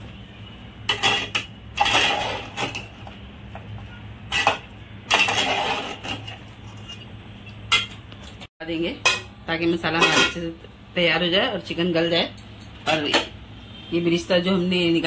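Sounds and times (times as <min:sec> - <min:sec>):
metal spatula scraping a pot: 0:00.9 - 0:03.0, 0:04.2 - 0:07.7.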